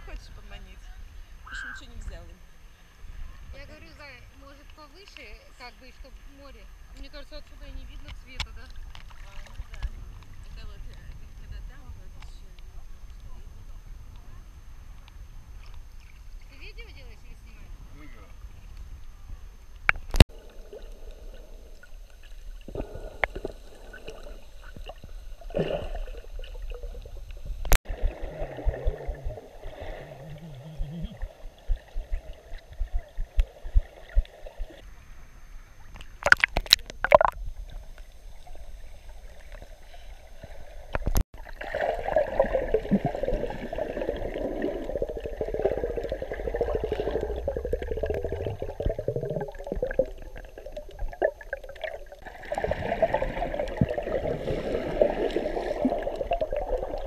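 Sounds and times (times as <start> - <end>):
steady water rushing: 0.0 - 35.0, 36.2 - 57.0
muffled underwater gurgling: 20.1 - 34.9, 36.2 - 37.6, 38.4 - 57.0.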